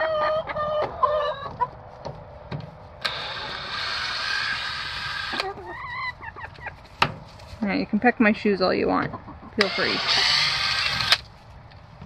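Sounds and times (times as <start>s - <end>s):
hens clucking: 0.0s - 11.8s
cordless drill running: 3.0s - 5.4s, 9.6s - 11.2s.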